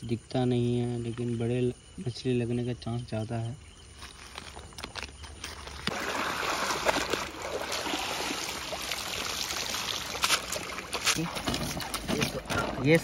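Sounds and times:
water pouring off fishing net: 0:05.8 - 0:12.6.

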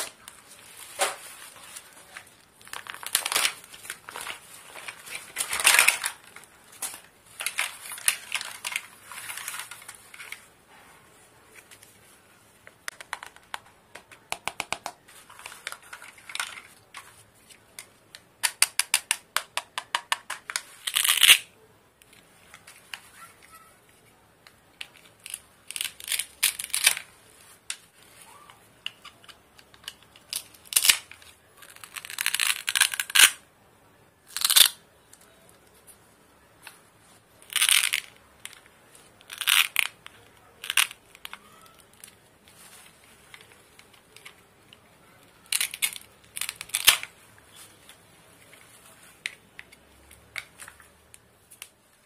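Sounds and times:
plastic pieces clicking and knocking: 0:02.6 - 0:10.4, 0:12.8 - 0:17.1, 0:17.7 - 0:23.0, 0:24.4 - 0:27.1, 0:28.8 - 0:33.4, 0:34.3 - 0:35.2, 0:37.4 - 0:42.2, 0:43.2 - 0:47.2
velcro ripping: 0:30.6 - 0:33.4.

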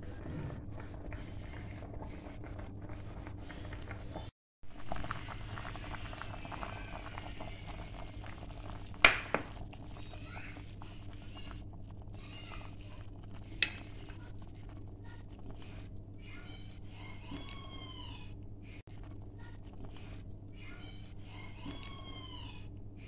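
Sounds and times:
spatula stirring pot: 0:00.0 - 0:04.3, 0:09.0 - 0:17.9
stew simmering and bubbling: 0:00.0 - 0:23.0.

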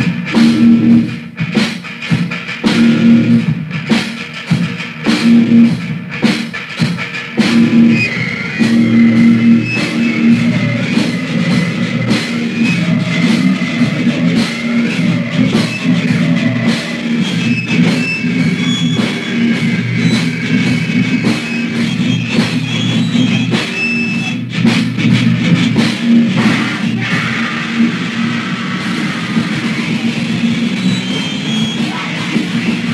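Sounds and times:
hardcore punk band playing: 0:00.0 - 0:32.9.

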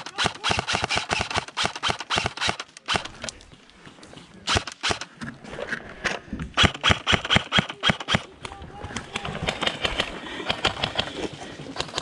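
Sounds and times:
airsoft gun firing sharp clicks: 0:00.0 - 0:03.2, 0:04.5 - 0:05.1, 0:06.6 - 0:08.2.

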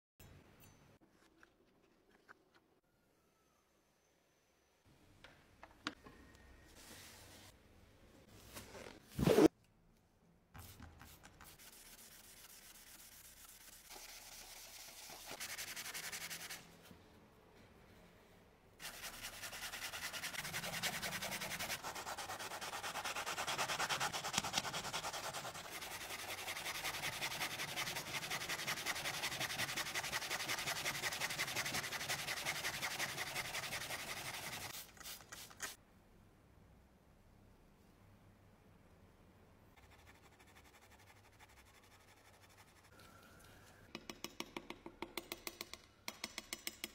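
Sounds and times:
razor blade being sanded by hand: 0:18.8 - 0:34.7.

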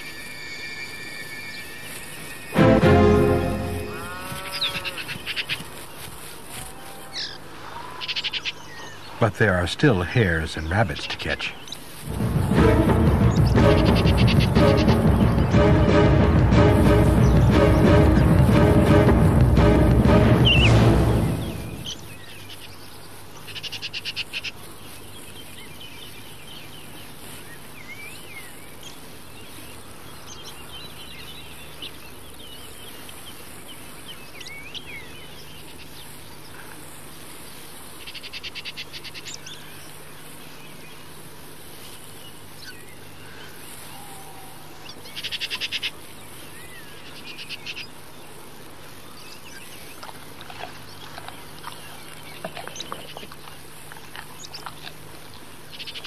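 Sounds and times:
low hum and hiss: 0:00.0 - 0:56.0
bird chirps: 0:13.1 - 0:15.6, 0:20.4 - 0:24.5
bird trilling: 0:13.2 - 0:15.5, 0:20.4 - 0:22.7.

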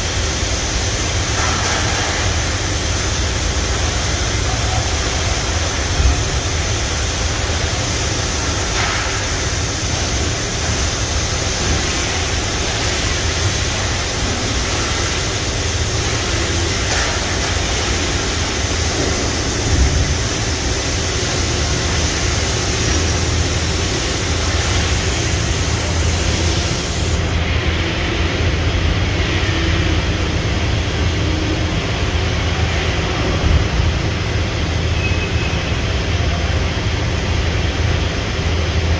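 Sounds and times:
coolant spraying hiss: 0:00.0 - 0:27.6.

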